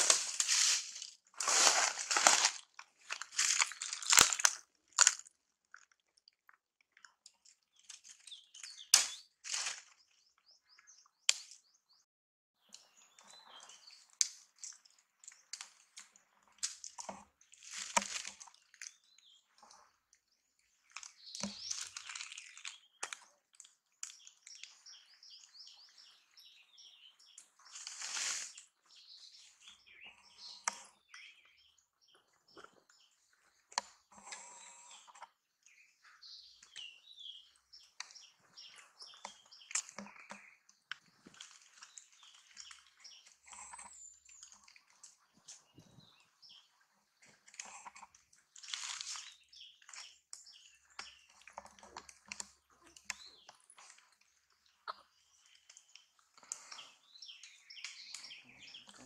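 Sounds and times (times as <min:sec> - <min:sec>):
dry leaves crunching and rustling: 0:00.0 - 0:05.2, 0:09.4 - 0:10.0, 0:27.7 - 0:28.6, 0:48.7 - 0:49.3
small birds chirping: 0:00.0 - 0:59.0.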